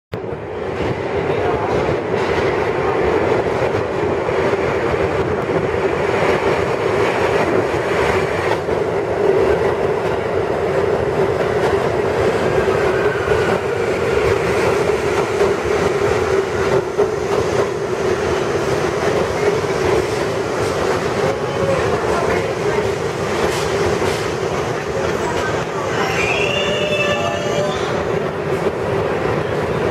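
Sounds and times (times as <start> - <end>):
steel wheels rumbling on rail: 0.2 - 29.9.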